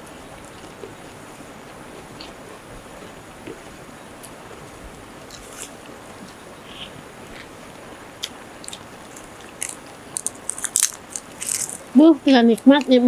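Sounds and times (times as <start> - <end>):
faint steady hiss: 0.0 - 13.0
chewing: 0.4 - 1.0, 3.0 - 7.6, 8.2 - 13.0
crisp crunches of fried food: 8.6 - 12.0.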